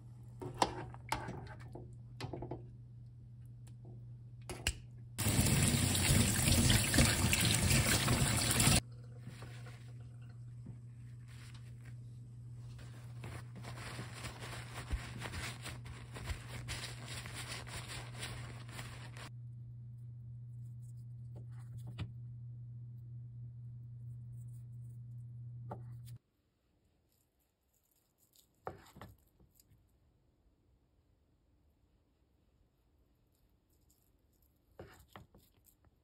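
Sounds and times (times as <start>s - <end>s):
paper towel rustling and crinkling: 11.0s - 19.3s.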